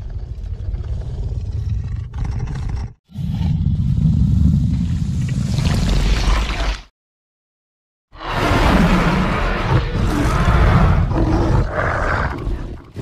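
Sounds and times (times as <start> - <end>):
creature deep growl: 8.2 - 13.0.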